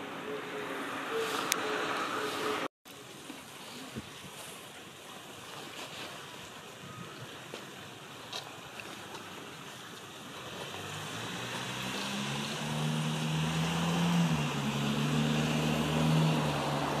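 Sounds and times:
vehicle engine hum: 0.0s - 2.7s, 9.2s - 17.0s.

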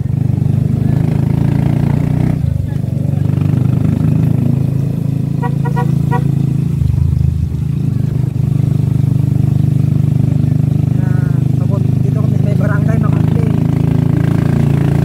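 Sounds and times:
motorcycle engine running: 0.0s - 15.0s
horn toots: 5.3s - 6.5s.

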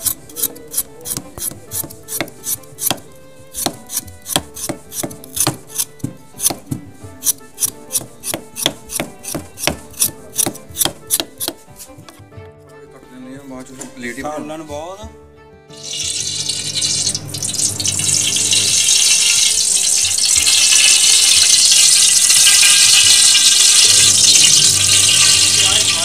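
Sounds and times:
knife cutting raw potato: 0.0s - 12.2s.

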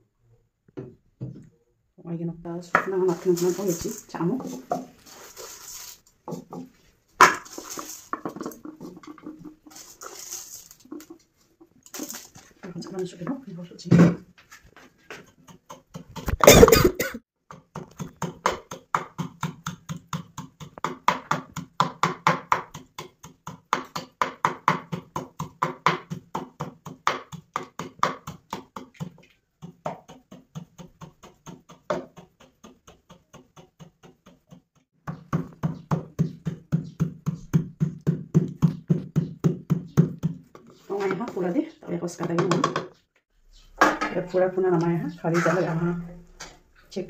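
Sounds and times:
pestle pounding in wooden mortar: 6.2s - 9.9s, 15.1s - 41.4s.

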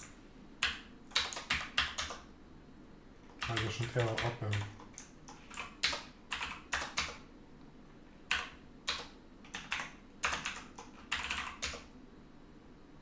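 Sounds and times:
typing on keyboard: 0.6s - 2.2s, 3.3s - 7.2s, 8.3s - 11.9s.

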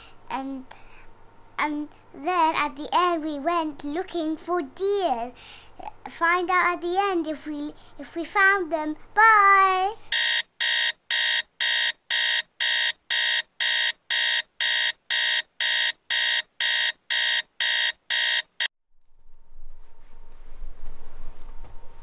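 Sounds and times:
alarm clock beeping: 10.1s - 18.7s.

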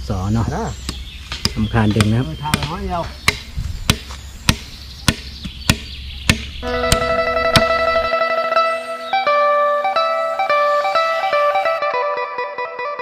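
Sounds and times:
machete chopping wood: 0.8s - 7.8s
plucked guitar music: 6.6s - 13.0s.

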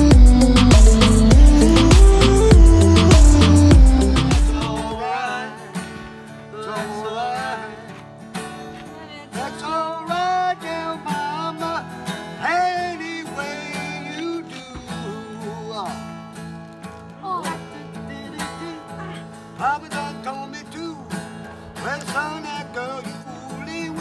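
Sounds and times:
bass-heavy music track: 0.0s - 5.0s
country song with acoustic guitar: 0.0s - 24.0s.

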